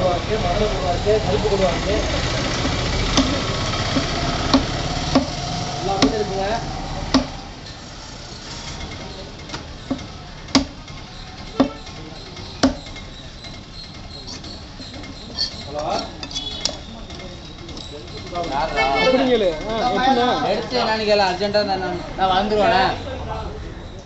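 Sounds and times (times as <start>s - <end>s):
knife knocking on wooden block: 2.6s - 5.4s, 7.1s - 7.4s, 9.5s - 10.8s, 11.5s - 12.0s, 12.6s - 13.0s.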